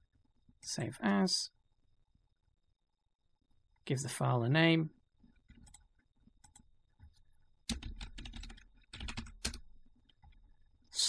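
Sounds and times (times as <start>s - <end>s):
keyboard typing: 5.4s - 10.5s.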